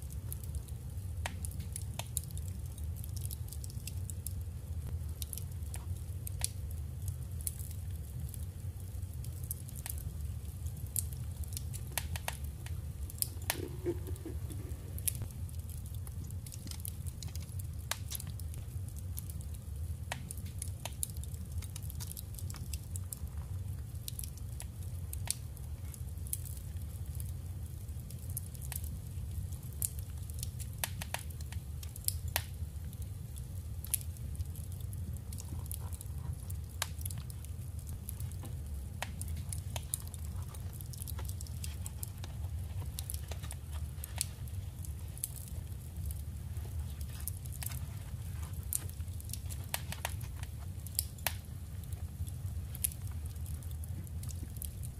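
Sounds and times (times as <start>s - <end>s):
steady low hum: 0.0s - 26.2s.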